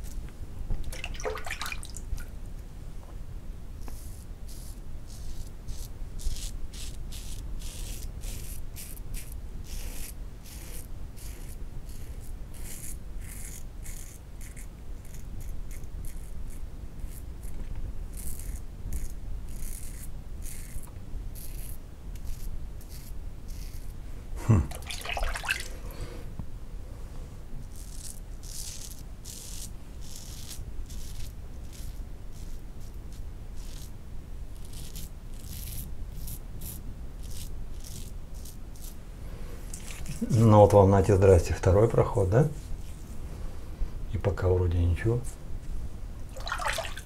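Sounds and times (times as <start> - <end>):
razor scraping stubble: 3.8 - 24.0, 27.6 - 33.9, 34.5 - 39.0, 39.7 - 40.7.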